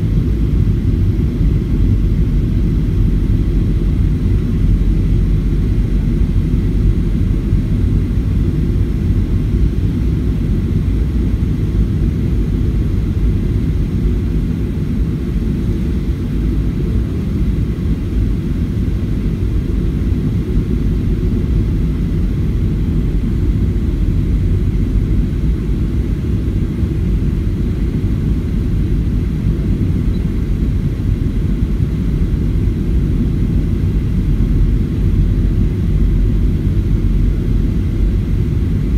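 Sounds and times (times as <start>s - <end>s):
jet engines rumbling: 0.0s - 38.9s.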